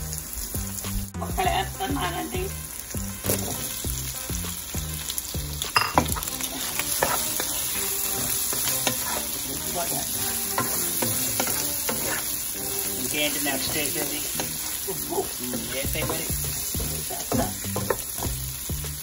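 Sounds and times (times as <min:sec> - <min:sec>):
faint background music: 0:00.0 - 0:19.0
oil sizzling in a frying pan: 0:00.0 - 0:19.0
wooden spatula scraping and tapping: 0:06.0 - 0:18.4.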